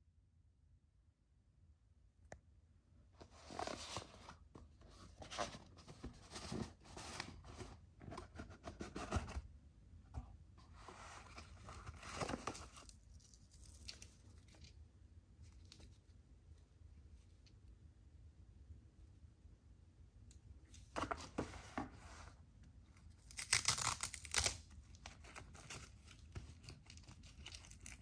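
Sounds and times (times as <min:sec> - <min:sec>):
cardboard scraping and rustling: 0:03.2 - 0:09.5, 0:10.6 - 0:12.9, 0:20.8 - 0:22.4.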